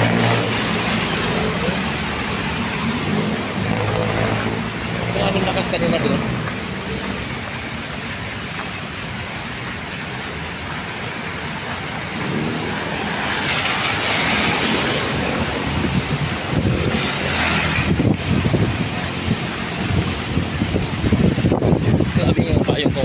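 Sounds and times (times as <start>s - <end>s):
car tyres hissing on wet road: 0.0s - 23.0s
rain: 0.0s - 23.0s
wind buffeting microphone: 6.3s - 23.0s.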